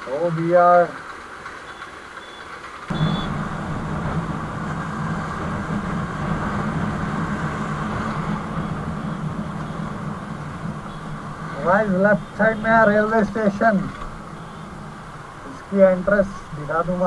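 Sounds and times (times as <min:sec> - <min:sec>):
motorcycle engine running: 0:02.9 - 0:15.4
wind rushing over microphone: 0:02.9 - 0:15.4.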